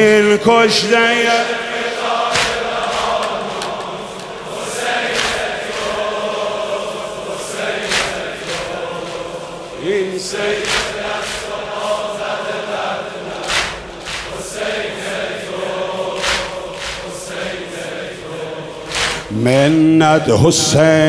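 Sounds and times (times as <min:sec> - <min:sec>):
crowd of men chanting: 0:00.2 - 0:21.0.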